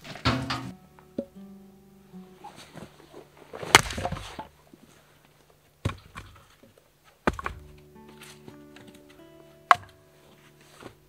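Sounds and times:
axe striking wood: 3.7 - 4.5, 7.2 - 7.8, 9.7 - 9.9.

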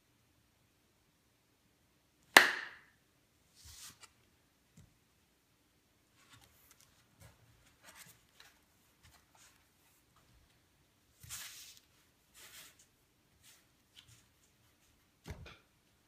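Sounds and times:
card deck swishing across table: 3.6 - 4.1, 11.2 - 12.8.

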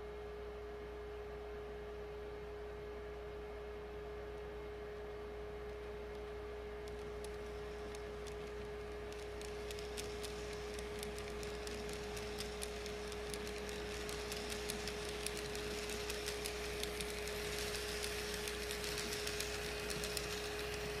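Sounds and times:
model train hum: 6.0 - 21.0
wheels clicking on rails: 6.1 - 21.0.

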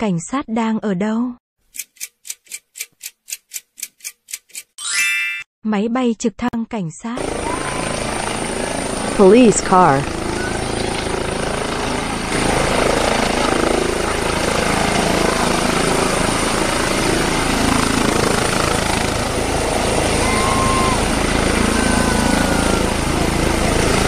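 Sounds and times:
helicopter rotor beating: 7.2 - 24.0
helicopter turbines rushing: 7.2 - 24.0.

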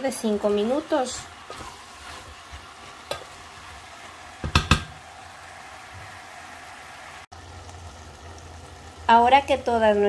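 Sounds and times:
food sizzling in a pot: 0.0 - 10.0
sharp knocks: 4.4 - 5.0.

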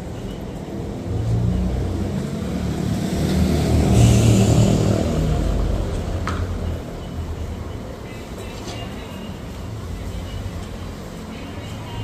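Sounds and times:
passing vehicle engine rumbling: 0.0 - 7.8.

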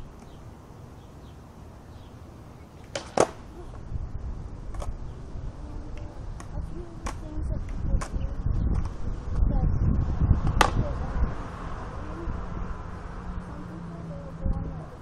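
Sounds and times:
skateboard wheels rolling on asphalt: 0.0 - 15.0
light clack of skateboard: 2.8 - 3.4, 4.7 - 5.0, 5.9 - 9.0, 10.6 - 10.8
skateboard tail pop and landing: 2.8 - 3.5, 10.4 - 10.8.

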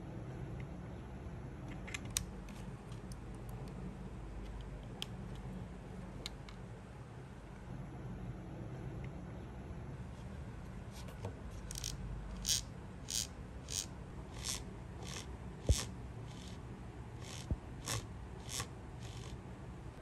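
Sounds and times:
low steady hum: 0.0 - 20.0
short scraping strokes: 17.2 - 19.4.

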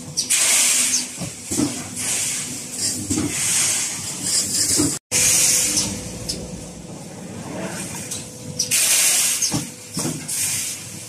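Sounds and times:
rough machine noise: 0.0 - 11.0
compressed-air hiss: 8.7 - 9.6.

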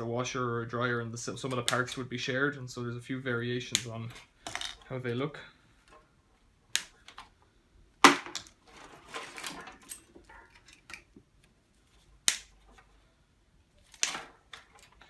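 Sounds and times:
plastic clips snapping: 6.7 - 7.2
wiring rustling: 8.3 - 13.1.

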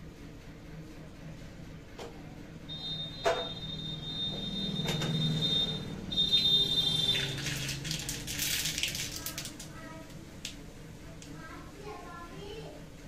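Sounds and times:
high whistle-like tone: 2.7 - 7.4
seeds crackling in hot oil: 6.2 - 9.8.

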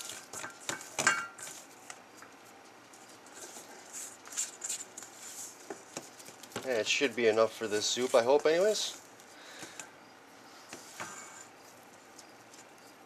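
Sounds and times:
dough squishing: 0.0 - 9.8
metal bowl clink: 0.4 - 1.4.

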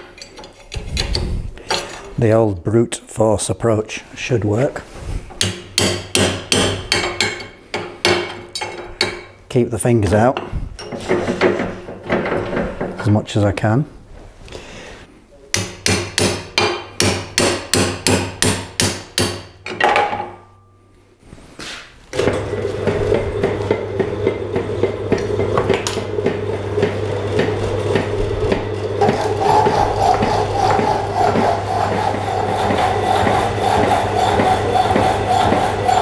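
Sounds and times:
metal shaper humming: 22.4 - 36.0.

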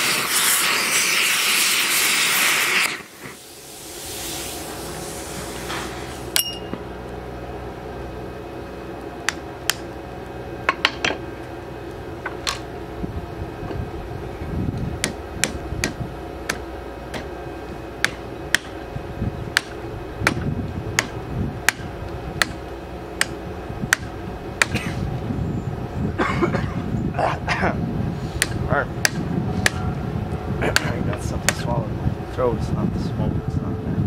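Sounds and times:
hammer striking metal: 6.4 - 6.8, 18.0 - 18.8, 19.5 - 20.4, 28.4 - 29.8.

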